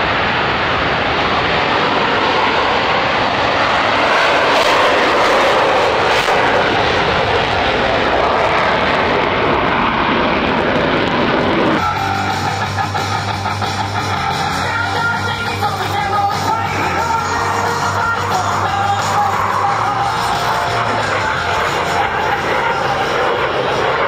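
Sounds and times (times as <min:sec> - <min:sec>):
jet engines roaring: 0:00.0 - 0:24.0
rock music: 0:11.1 - 0:24.0.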